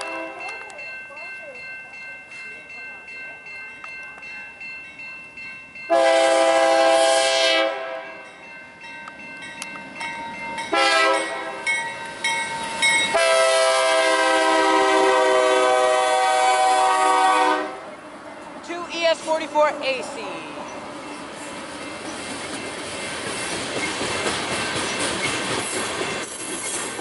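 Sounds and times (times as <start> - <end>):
locomotive air horn blasts: 0.0 - 0.5, 5.9 - 8.1, 10.7 - 11.6, 13.1 - 17.8
train rail noise: 0.0 - 27.0.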